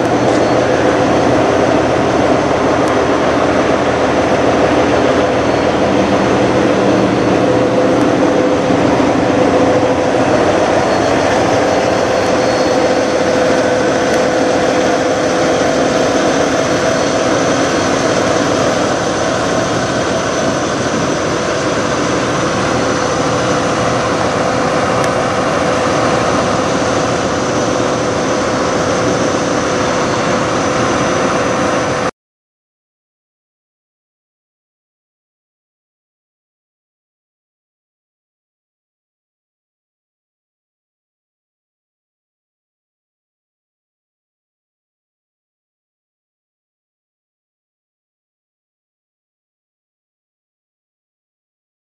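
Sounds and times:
diesel engines idling: 0:00.0 - 0:32.0
thin high whine: 0:00.0 - 0:32.1.

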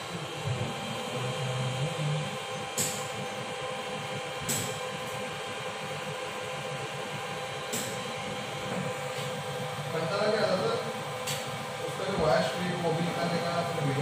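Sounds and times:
machine hum with steady tones: 0:00.0 - 0:14.0.

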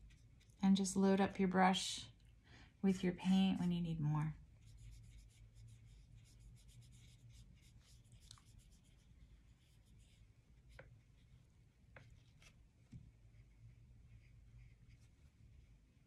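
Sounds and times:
paintbrush brushing on paper: 0:00.0 - 0:00.6, 0:04.4 - 0:16.0
low steady hum: 0:00.0 - 0:16.0.

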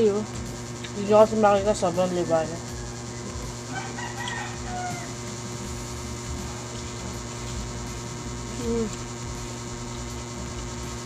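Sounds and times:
electric fan humming: 0:00.0 - 0:11.0
person humming: 0:06.3 - 0:09.5.

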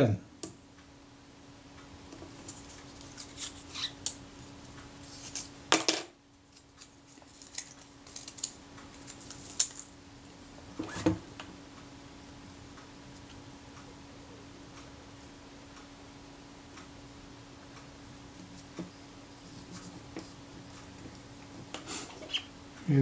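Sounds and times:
faint steady hum: 0:00.0 - 0:23.0
backing paper peeling crackle: 0:06.5 - 0:09.9.

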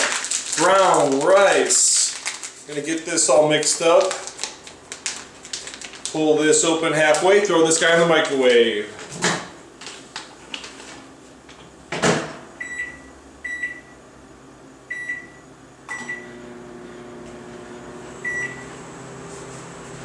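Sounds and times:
microwave humming: 0:11.6 - 0:20.0
keypad beeps: 0:12.6 - 0:13.9.

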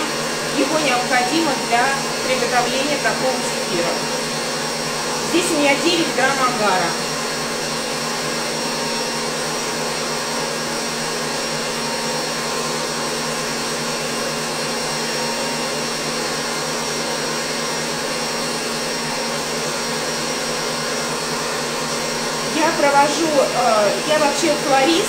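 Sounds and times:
electric stand mixer whirring: 0:00.0 - 0:25.0.

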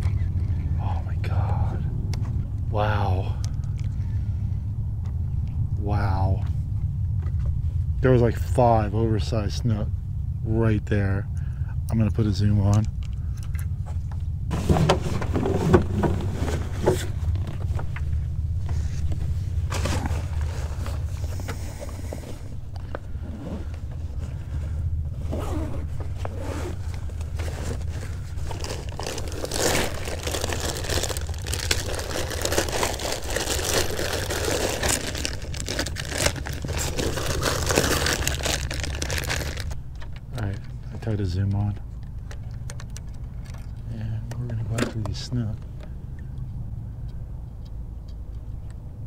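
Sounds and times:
low rumble: 0:00.0 - 0:49.0
rummaging in fabric backpack: 0:19.6 - 0:39.8
backpack zipper: 0:25.2 - 0:27.9
plastic package crinkling: 0:27.1 - 0:40.5.

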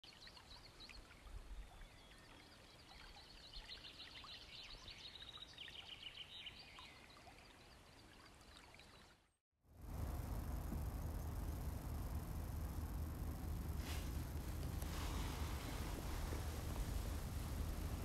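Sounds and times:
low rumble: 0:09.8 - 0:18.0.

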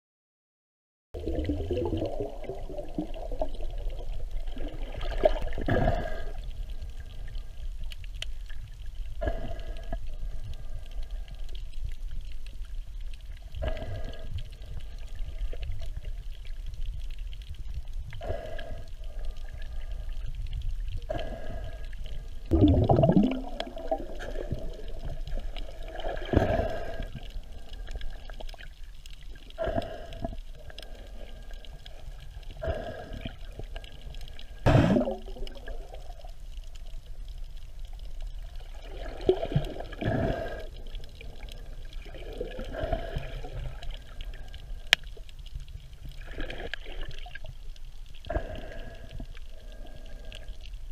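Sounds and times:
air bubbles gurgling: 0:01.2 - 0:06.8, 0:22.5 - 0:36.4, 0:38.4 - 0:44.5
underwater rumble: 0:01.2 - 0:50.9.

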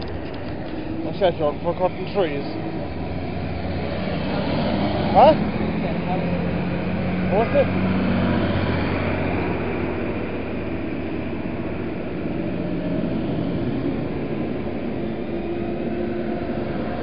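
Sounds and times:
tractor engines rumbling: 0:00.0 - 0:17.0.

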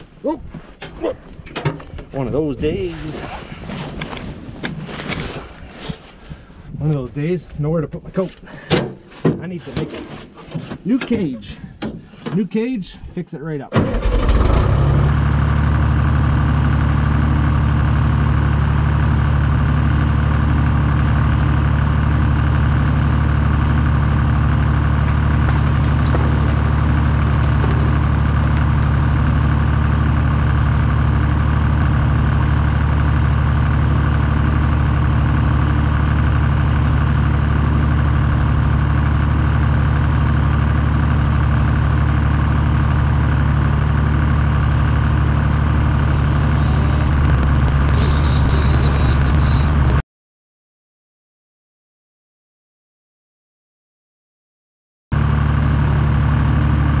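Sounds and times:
skidder engine running steadily: 0:13.8 - 0:50.0, 0:55.2 - 0:57.0.

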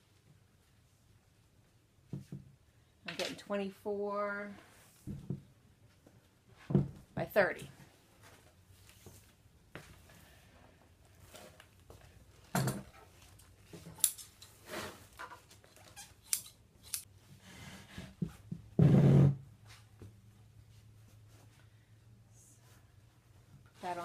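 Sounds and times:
scissors snipping: 0:16.2 - 0:17.1.

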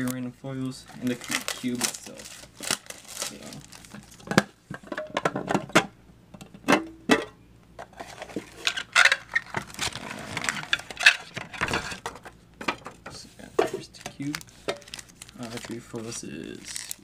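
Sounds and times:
foil packs rustling: 0:00.8 - 0:04.3, 0:08.1 - 0:12.2, 0:13.3 - 0:17.0.

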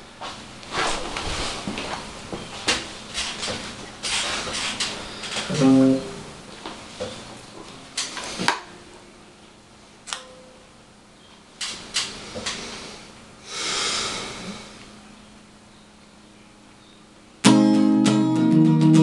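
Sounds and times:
faint steady hum: 0:00.0 - 0:18.2
short rustle: 0:00.2 - 0:06.1.

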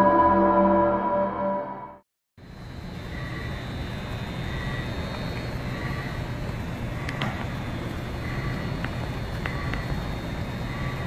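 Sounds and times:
train equipment low rumble: 0:02.4 - 0:11.0.

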